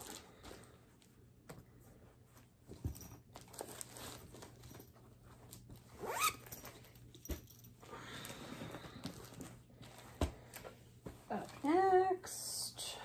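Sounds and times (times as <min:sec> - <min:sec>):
plastic and paper rustling: 0:00.0 - 0:01.5, 0:02.1 - 0:06.0
zip: 0:05.9 - 0:06.6.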